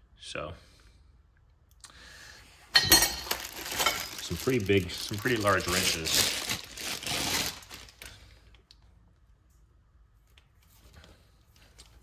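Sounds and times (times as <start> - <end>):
plastic packaging crinkling: 3.1 - 8.4.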